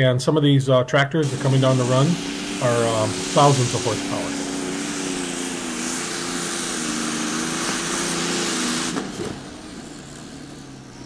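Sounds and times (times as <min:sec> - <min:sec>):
loud rushing hiss: 0:01.2 - 0:10.9
tractor engine at full power: 0:01.2 - 0:11.0.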